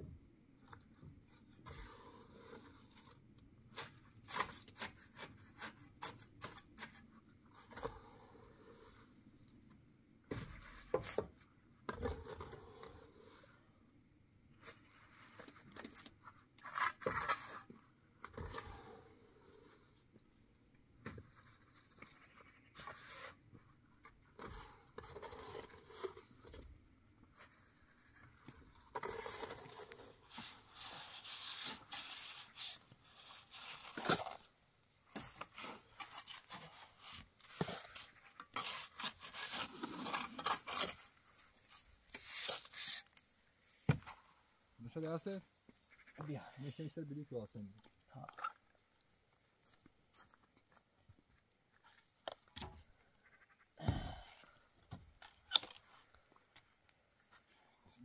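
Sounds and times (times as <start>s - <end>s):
trowel scraping wet mortar: 28.9s - 34.4s, 35.5s - 43.2s.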